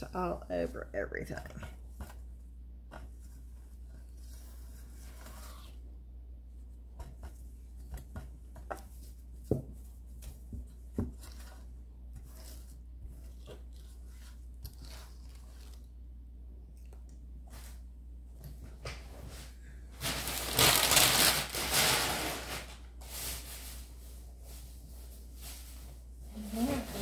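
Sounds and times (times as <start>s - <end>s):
objects rustling and scraping on table: 7.0s - 15.9s.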